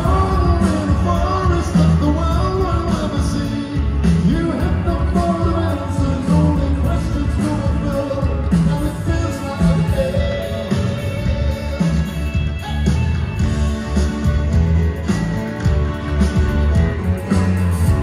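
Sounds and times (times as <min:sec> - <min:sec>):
person singing: 0:00.0 - 0:12.7
drums: 0:00.0 - 0:18.0
electric guitars: 0:00.0 - 0:18.0
heavy bass: 0:00.0 - 0:18.0.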